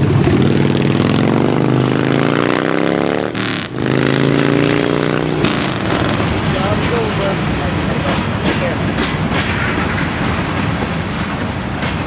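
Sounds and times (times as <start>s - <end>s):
engine accelerating through gears: 0.0s - 6.5s
freight cars rolling past: 0.0s - 12.0s.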